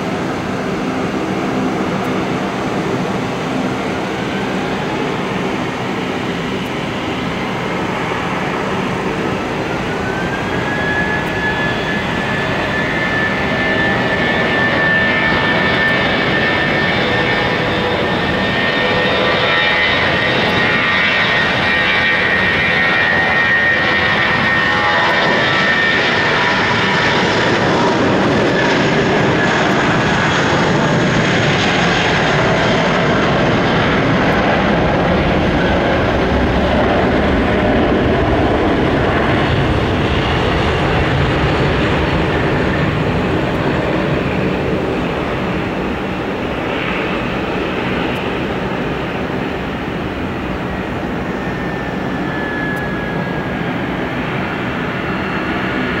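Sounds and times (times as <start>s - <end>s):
high engine whine: 0.0s - 56.0s
jet engine roar: 0.0s - 56.0s.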